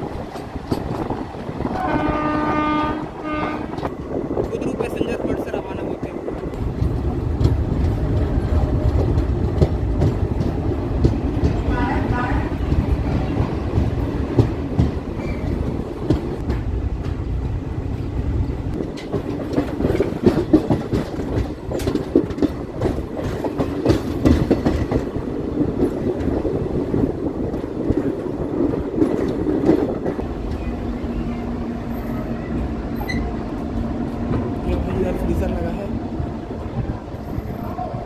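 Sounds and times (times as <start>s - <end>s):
train wheels clattering over rails: 0.0s - 5.3s, 5.9s - 35.9s.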